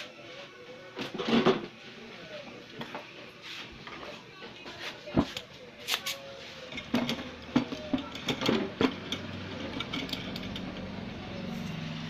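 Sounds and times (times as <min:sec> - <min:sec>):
small tools clicking and tapping: 0:05.4 - 0:10.9.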